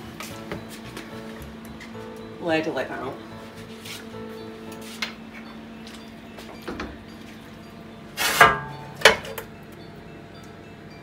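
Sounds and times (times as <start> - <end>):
metal ladle clanking on pot: 8.2 - 9.5.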